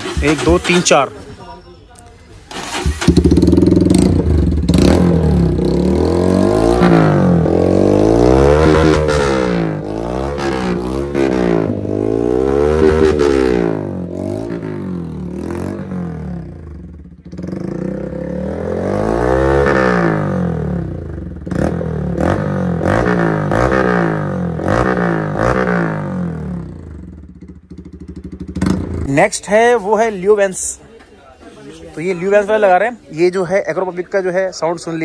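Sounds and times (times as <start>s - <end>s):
exhaust cracks: 0.0s - 1.1s
motorcycle engine revving: 0.0s - 1.2s, 2.5s - 29.2s.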